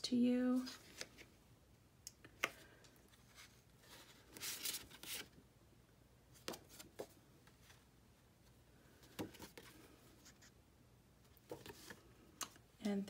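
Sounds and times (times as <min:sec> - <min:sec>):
paper rustling: 0:03.1 - 0:05.4.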